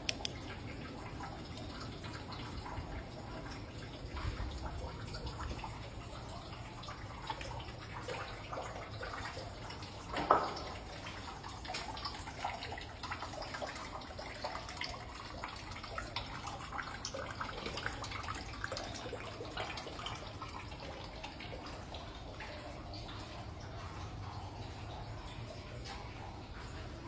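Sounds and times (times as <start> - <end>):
small ticks: 0.0 - 0.4
water trickling and dripping: 0.0 - 27.0.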